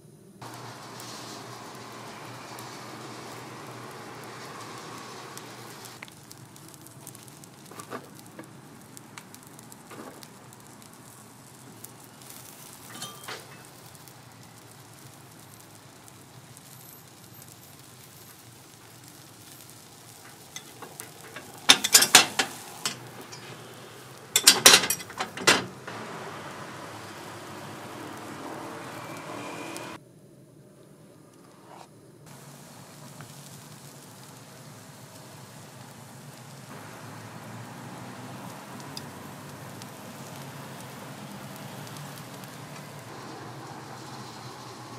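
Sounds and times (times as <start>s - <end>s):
batter sizzling: 0.3s - 30.0s, 30.6s - 44.9s
loud clattering: 20.6s - 23.6s, 24.4s - 26.0s.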